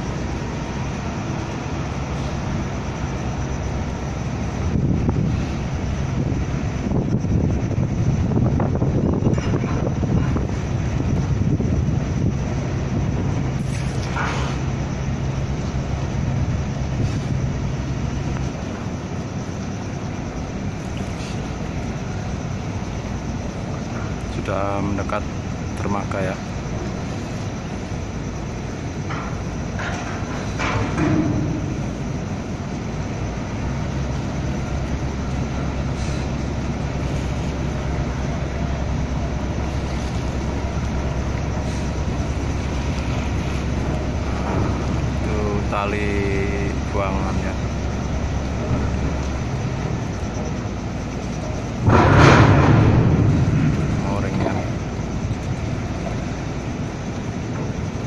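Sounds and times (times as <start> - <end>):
ship engines droning: 0.0 - 58.0
wind noise on microphone: 3.8 - 24.0.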